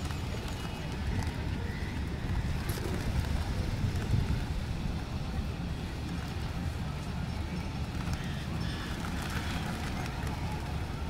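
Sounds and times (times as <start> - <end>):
pigeon wings flapping: 0.0 - 4.7, 7.9 - 11.0
wind buffeting microphone: 0.0 - 8.0.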